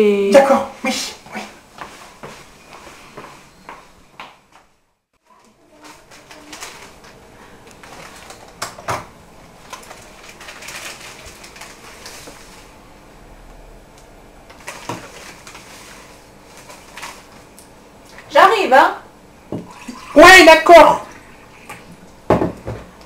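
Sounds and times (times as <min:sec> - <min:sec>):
plastic bag crinkling: 0:05.6 - 0:08.8, 0:09.5 - 0:12.7, 0:14.5 - 0:17.5.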